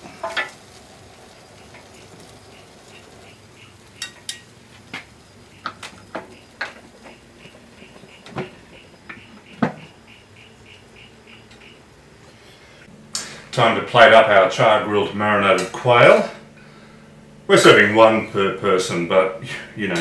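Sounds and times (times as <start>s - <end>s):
metal tongs clacking on plates: 4.0s - 4.5s.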